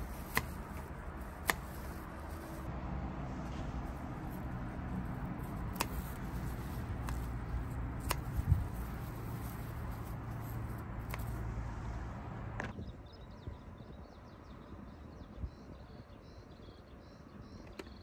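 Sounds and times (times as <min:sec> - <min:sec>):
garden scissors snipping stems: 0:00.0 - 0:02.7, 0:03.9 - 0:11.5.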